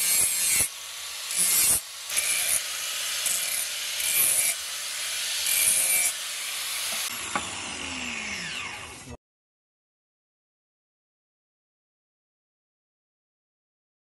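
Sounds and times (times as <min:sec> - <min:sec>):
angle grinder grinding steel: 0:00.0 - 0:09.2
grinder disc spinning down: 0:01.3 - 0:09.2.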